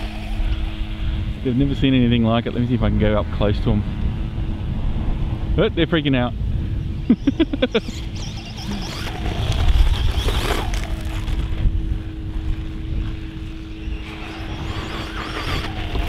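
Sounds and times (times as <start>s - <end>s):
electric motor whine: 0.0s - 5.4s, 6.6s - 16.0s
wind rumble on microphone: 0.0s - 16.0s
wheels on gravel and grass: 7.8s - 16.0s.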